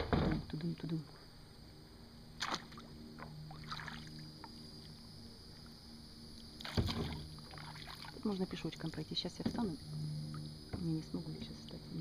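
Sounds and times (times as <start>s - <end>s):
sharp splash or knock: 2.4s - 2.8s, 6.6s - 8.2s
paddle splashes and drips: 2.4s - 5.0s, 6.4s - 8.5s.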